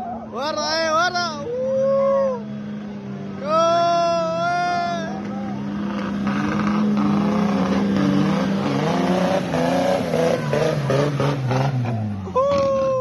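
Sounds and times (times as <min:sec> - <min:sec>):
rally car engine running hard: 0:02.3 - 0:13.0.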